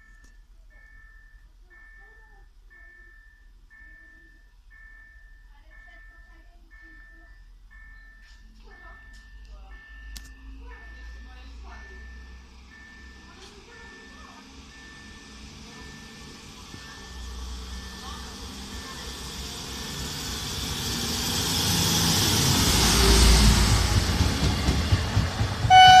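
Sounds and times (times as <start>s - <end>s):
diesel railbus engine: 6.9s - 26.0s
wheels on rails: 11.9s - 26.0s.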